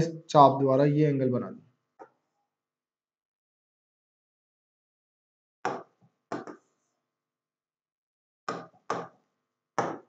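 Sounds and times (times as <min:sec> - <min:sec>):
stylus tapping on whiteboard screen: 0:02.0 - 0:02.2, 0:05.7 - 0:06.8, 0:08.5 - 0:10.0.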